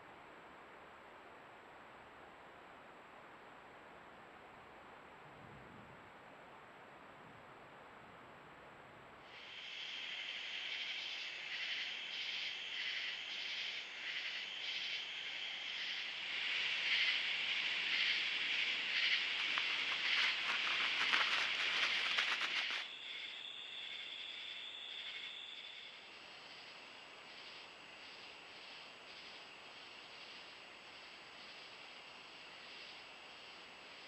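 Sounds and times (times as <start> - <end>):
rapid clicking: 19.0 - 22.8.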